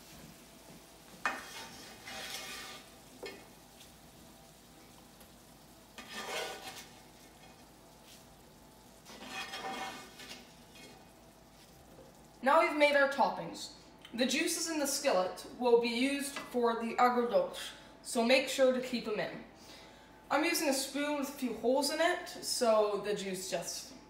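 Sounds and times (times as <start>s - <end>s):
spatula scraping frying pan: 1.0s - 12.1s.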